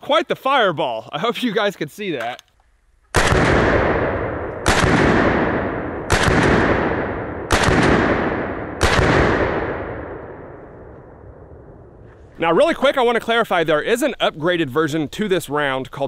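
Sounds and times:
rifle shots with rolling echo: 3.1 - 12.2.

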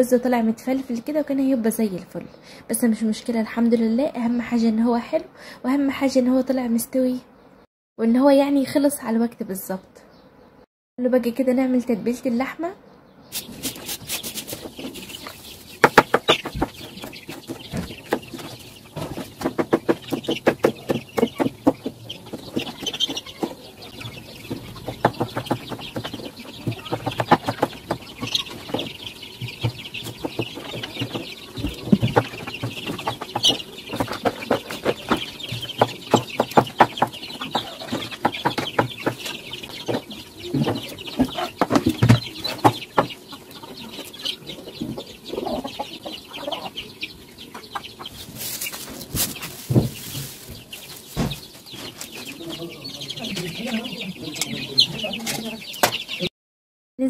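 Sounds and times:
chickens calling: 12.0 - 56.3.

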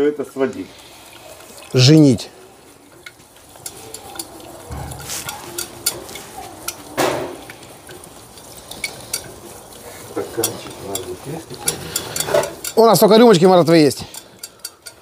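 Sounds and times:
whisk scraping metal pan: 3.0 - 7.1, 7.9 - 15.0.

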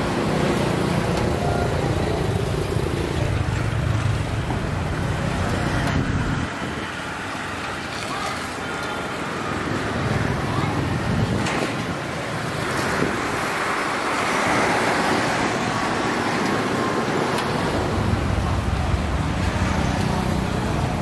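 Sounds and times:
road traffic: 0.0 - 21.0.

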